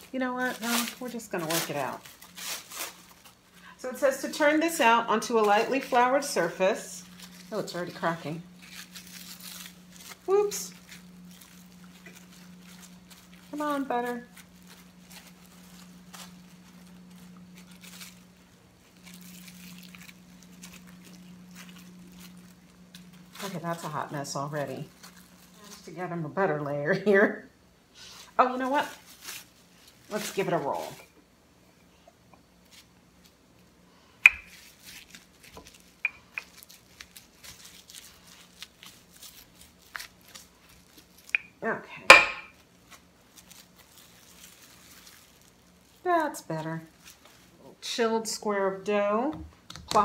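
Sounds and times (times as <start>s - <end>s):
cling film crinkling: 0.0s - 26.6s, 28.0s - 31.2s, 32.5s - 41.7s, 42.5s - 48.0s
faint steady hum: 0.0s - 50.0s.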